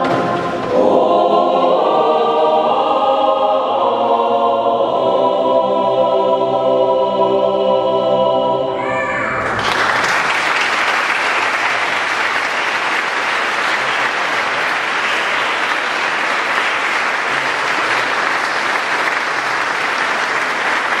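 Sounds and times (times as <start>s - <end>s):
audience applauding: 9.4s - 21.0s.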